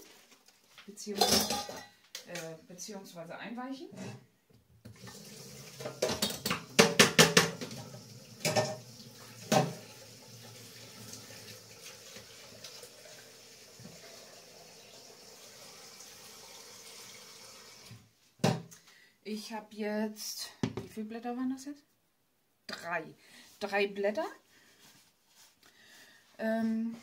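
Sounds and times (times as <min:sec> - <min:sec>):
dishes and cutlery clinking: 0:01.2 - 0:02.0, 0:05.8 - 0:07.8, 0:08.4 - 0:08.8
tap water running: 0:04.9 - 0:18.1.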